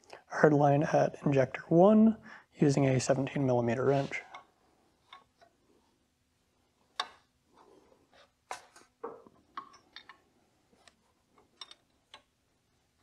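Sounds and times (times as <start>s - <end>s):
metal wrench clicking and tapping: 11.6s - 12.3s.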